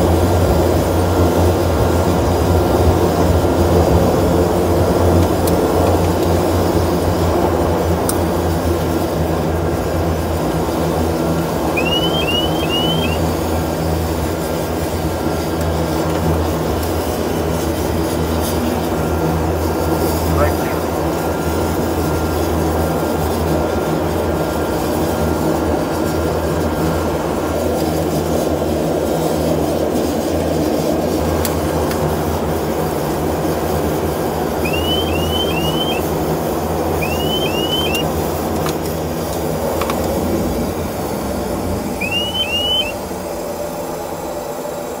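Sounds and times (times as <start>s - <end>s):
airliner engines humming: 0.0s - 45.0s
short rising chirps: 11.7s - 13.2s, 34.6s - 36.1s, 37.0s - 38.0s, 42.0s - 43.0s.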